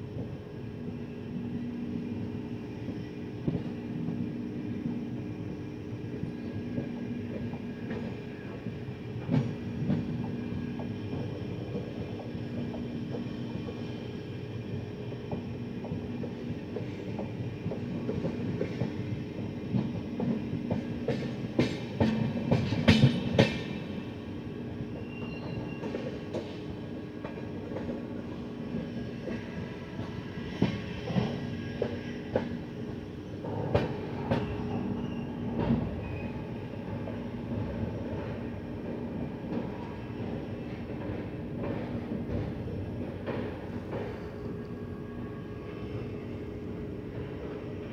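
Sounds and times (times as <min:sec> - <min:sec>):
train wheels rumbling on rail: 0:00.0 - 0:47.9.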